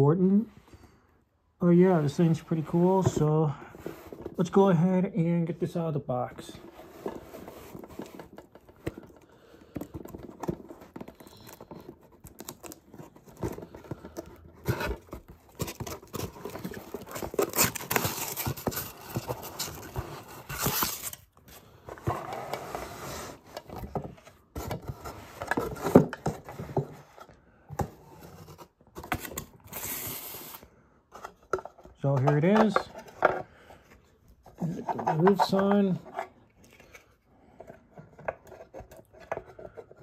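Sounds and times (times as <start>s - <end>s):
cardboard scraping and rustling: 1.8s - 4.6s, 6.3s - 33.4s, 34.5s - 37.0s.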